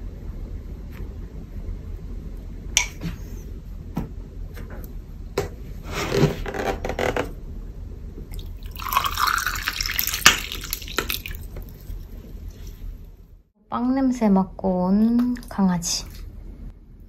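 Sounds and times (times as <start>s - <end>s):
liquid being poured: 8.3s - 12.8s.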